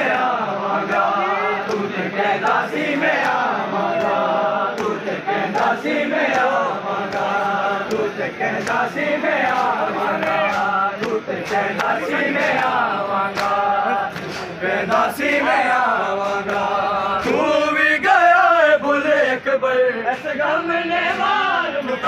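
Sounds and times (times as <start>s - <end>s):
men chanting a lament: 0.0s - 22.0s
hands slapping bare chests: 2.5s - 15.1s.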